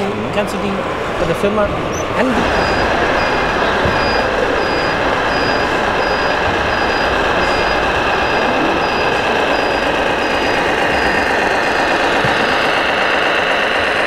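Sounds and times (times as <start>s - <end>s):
model trucks running: 0.0s - 14.0s
high electronic beeps: 1.9s - 12.8s.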